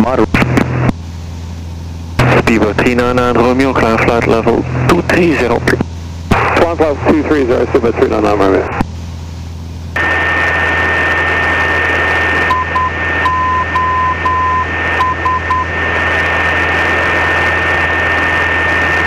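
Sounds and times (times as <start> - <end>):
aircraft engine drone: 0.0 - 19.0
radio receiver hiss: 0.0 - 19.0
morse code tone: 12.5 - 15.7.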